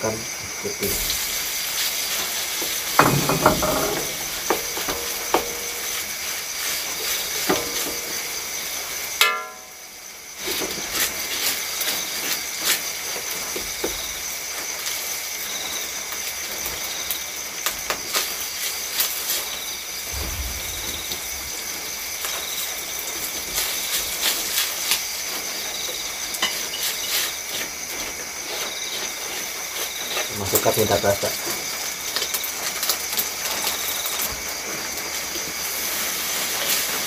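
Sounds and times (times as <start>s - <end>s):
crickets trilling: 0.0s - 37.0s
rice sizzling in a wok: 0.0s - 37.0s
spatula scraping and knocking pan: 1.9s - 8.3s.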